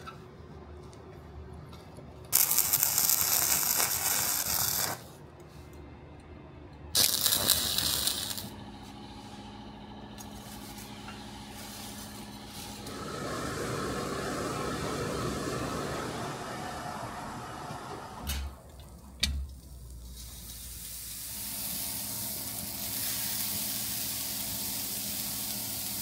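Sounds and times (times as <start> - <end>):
steady machine hum: 5.0 - 20.0, 20.9 - 26.0
power tool on metal: 7.0 - 8.6, 10.2 - 16.6.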